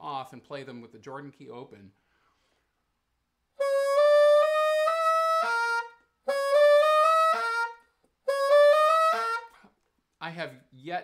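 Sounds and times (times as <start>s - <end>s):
bassoon chromatic run: 3.6s - 9.6s.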